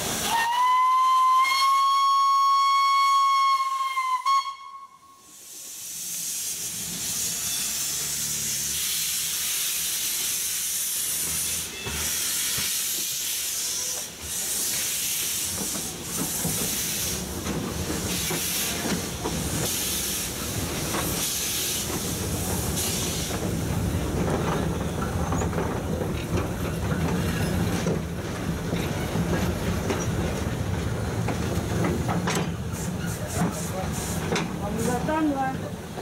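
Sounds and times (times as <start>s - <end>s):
train rumbling: 0.0s - 36.0s
steam locomotive whistle: 0.2s - 5.5s
steam hiss: 4.2s - 26.4s, 27.1s - 35.4s.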